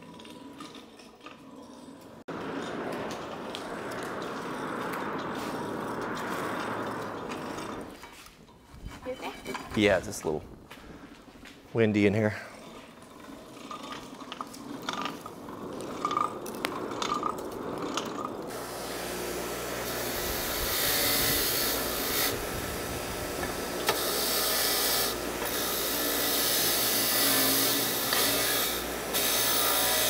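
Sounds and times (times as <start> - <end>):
bench grinder grinding steel: 0.0 - 9.8, 12.6 - 30.0
fire crackling in forge: 0.0 - 29.8.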